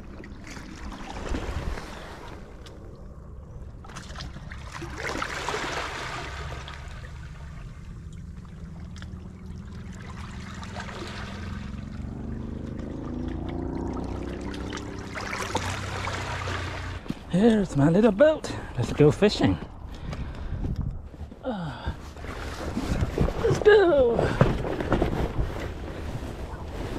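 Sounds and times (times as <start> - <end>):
small waves lapping over stones: 3.9 - 17.2
low rumble: 5.7 - 23.6
faint rising drone: 6.2 - 20.0.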